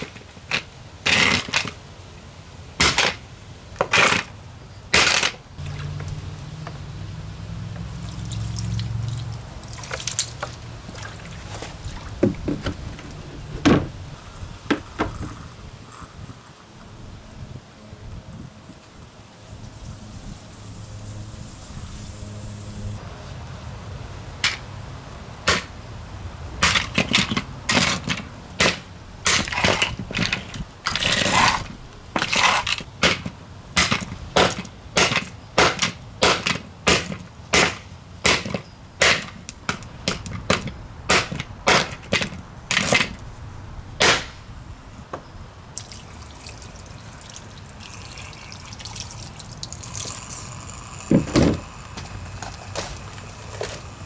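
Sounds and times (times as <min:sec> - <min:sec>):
hard blows smashing plastic fan: 0:26.6 - 0:43.2.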